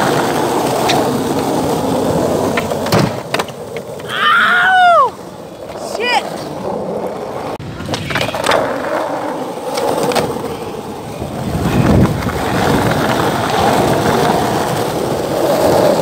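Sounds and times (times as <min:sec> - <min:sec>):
skateboard wheels rolling on concrete: 0:00.0 - 0:16.0
wheels clicking over cracks: 0:06.7 - 0:16.0.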